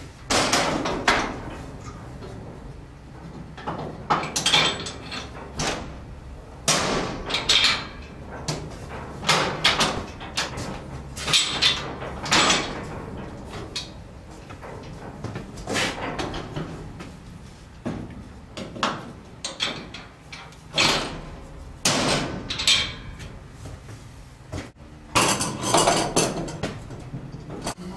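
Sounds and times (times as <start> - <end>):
metal clanks and scraping: 0.2 - 17.2, 18.6 - 23.5, 25.2 - 27.9.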